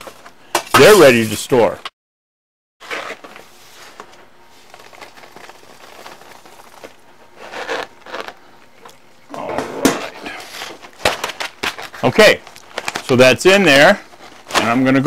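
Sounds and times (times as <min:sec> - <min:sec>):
foil bag crinkling: 0:02.8 - 0:09.0, 0:10.4 - 0:15.0.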